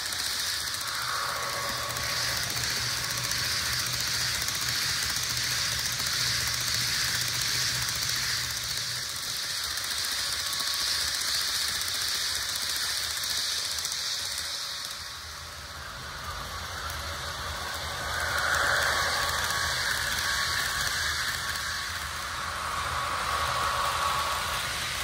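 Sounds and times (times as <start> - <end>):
model train motor whirring: 0.0 - 25.0
low hum: 0.7 - 4.4, 15.8 - 25.0.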